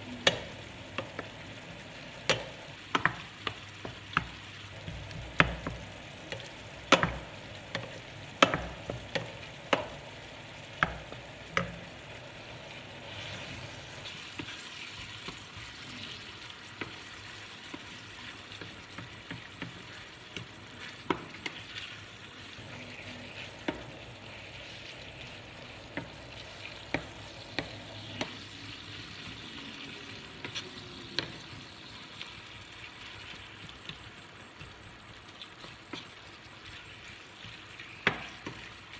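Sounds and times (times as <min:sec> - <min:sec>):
meat sizzling in a pan: 0:00.0 - 0:38.9
wooden spoon scraping a pan: 0:00.2 - 0:31.6
spoon knocking against pan: 0:02.2 - 0:10.0, 0:10.6 - 0:11.8.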